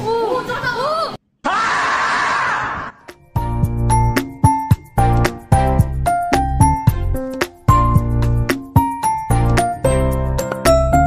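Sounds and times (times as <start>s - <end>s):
light instrumental keyboard music: 3.3s - 11.0s.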